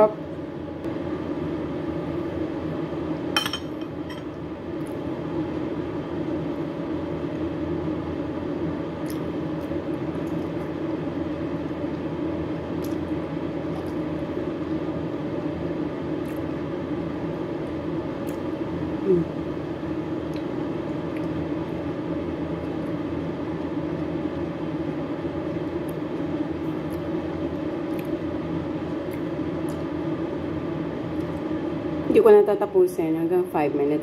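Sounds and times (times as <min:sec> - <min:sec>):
steady low hum: 0:00.0 - 0:34.0
metal spoon clinking on bowl: 0:03.4 - 0:04.2.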